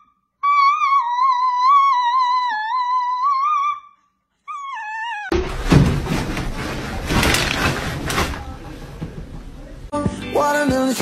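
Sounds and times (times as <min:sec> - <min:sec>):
dog howling: 0:00.4 - 0:03.9, 0:04.5 - 0:05.3
loud rustling with knocks: 0:05.3 - 0:09.9.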